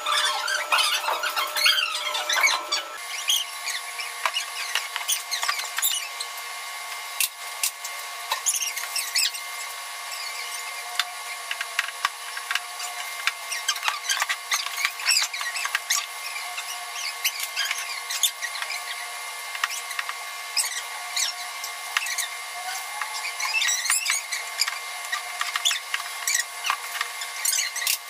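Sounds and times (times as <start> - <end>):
plastic bags squeaking: 0.0 - 6.1, 22.0 - 28.0.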